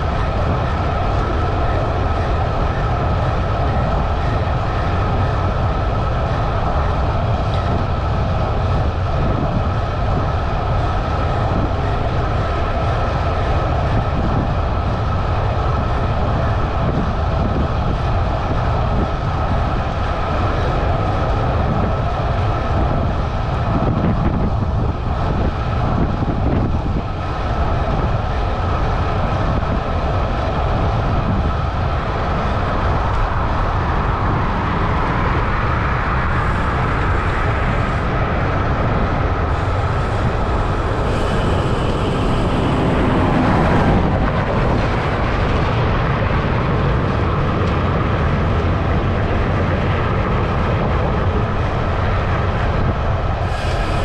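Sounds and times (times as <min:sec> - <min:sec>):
wind rush on microphone: 0:00.0 - 0:54.0
vehicle passing: 0:39.5 - 0:46.0.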